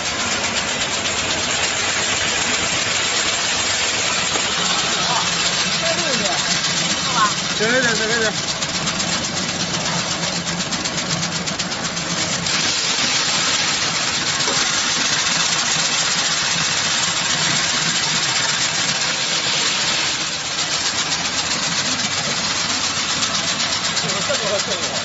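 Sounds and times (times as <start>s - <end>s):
grain pouring hiss: 0.0s - 25.0s
machine screen rattling: 0.0s - 25.0s.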